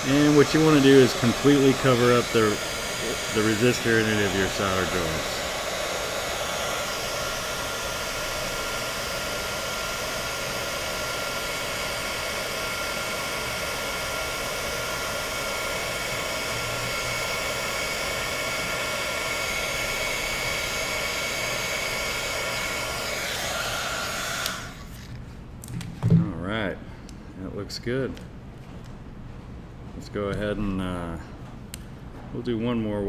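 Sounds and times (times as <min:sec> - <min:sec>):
heat gun blowing air: 0:00.0 - 0:25.0.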